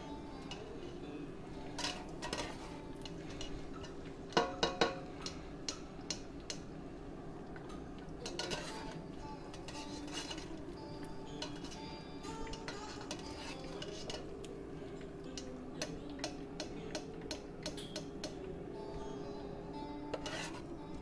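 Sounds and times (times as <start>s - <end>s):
metal utensils clinking on a pan: 0.1s - 0.9s, 1.6s - 6.6s, 8.2s - 14.4s, 15.3s - 18.4s, 20.1s - 20.6s.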